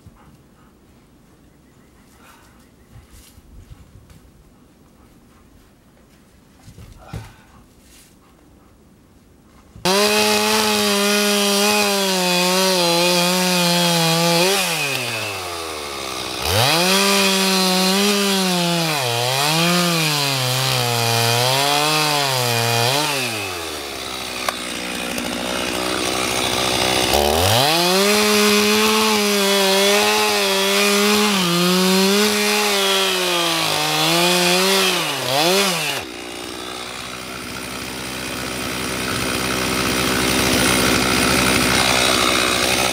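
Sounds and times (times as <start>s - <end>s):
chainsaw cutting log: 9.8s - 42.9s.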